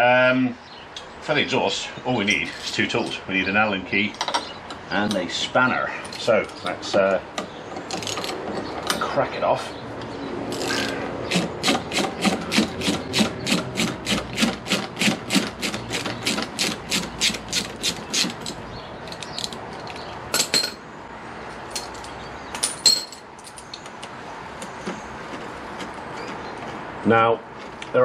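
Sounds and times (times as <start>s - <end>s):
spanner rasping on bolt: 10.5s - 20.1s.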